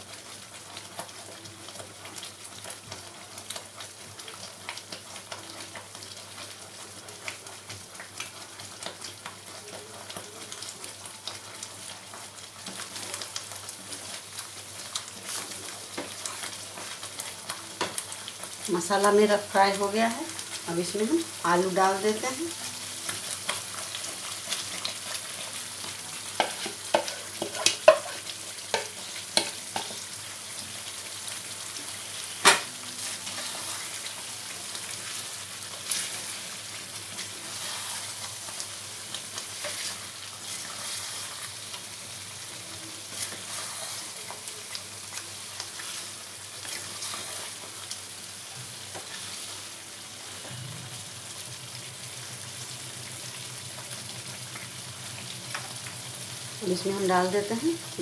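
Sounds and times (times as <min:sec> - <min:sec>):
gravy sizzling in a pan: 0:00.0 - 0:58.0
spatula stirring: 0:26.4 - 0:30.0, 0:37.1 - 0:38.7, 0:39.3 - 0:41.7, 0:43.1 - 0:47.9.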